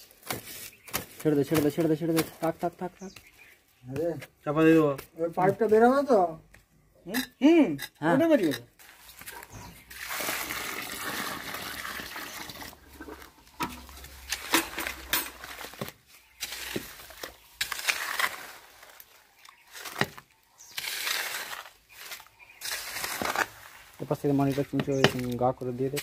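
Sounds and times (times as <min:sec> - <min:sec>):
spade scraping and chopping earth: 0:00.0 - 0:05.9, 0:07.1 - 0:26.0
water pouring onto soil: 0:09.8 - 0:15.8.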